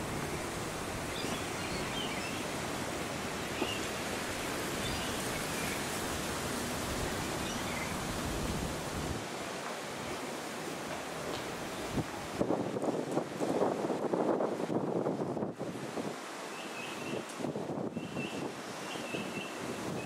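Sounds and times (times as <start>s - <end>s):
wind noise: 11.5s - 20.0s.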